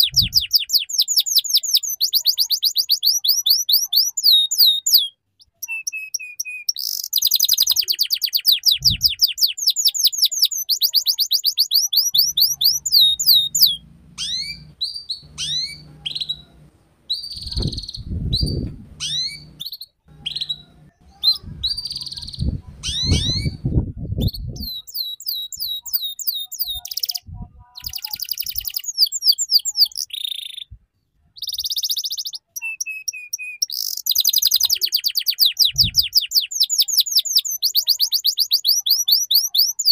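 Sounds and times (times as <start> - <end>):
canary singing rattling trills: 0.0 - 27.2, 27.8 - 30.7, 31.4 - 39.9
low rumbling noise: 12.3 - 24.7.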